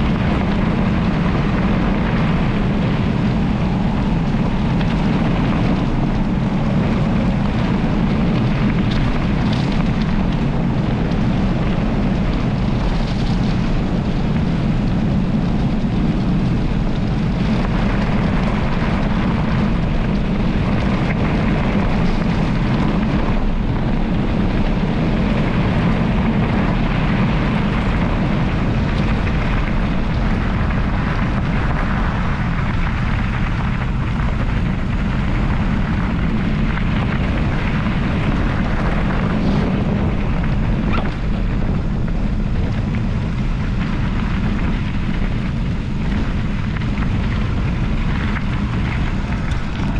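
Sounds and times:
wind buffeting microphone: 0.0 - 49.9
tyres rolling on gravel: 17.4 - 49.9.

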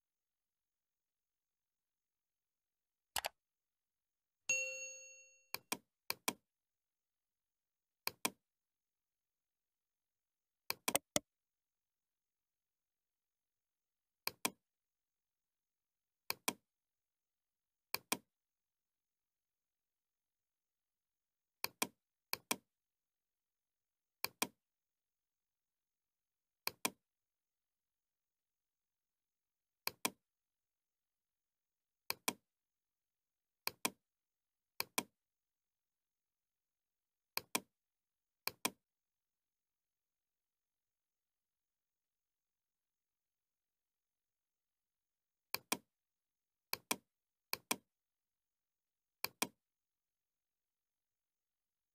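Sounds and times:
computer mouse clicks: 3.2 - 3.4, 8.0 - 8.4, 10.7 - 11.2, 14.2 - 14.6, 16.3 - 16.6, 17.9 - 18.3, 21.6 - 22.6, 24.2 - 24.6, 26.6 - 27.0, 29.8 - 30.2, 33.6 - 34.0, 34.8 - 35.1, 37.4 - 37.7, 38.5 - 38.8, 45.5 - 45.9, 46.7 - 47.9, 49.2 - 49.6.

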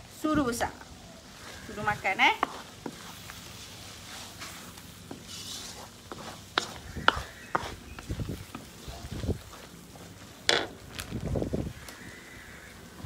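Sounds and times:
wooden spatula scraping wok: 1.3 - 12.2.

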